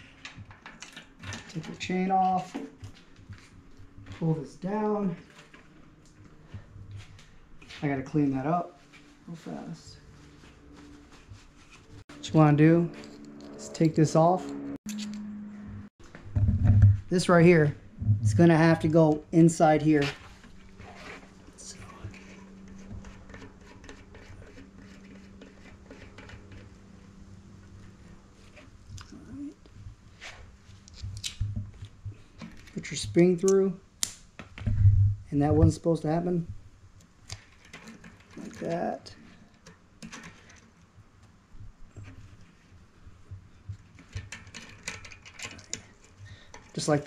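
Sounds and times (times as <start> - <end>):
metallic clicks and scrapes: 11.6 - 15.3, 19.0 - 34.2, 37.0 - 41.0, 43.6 - 47.0.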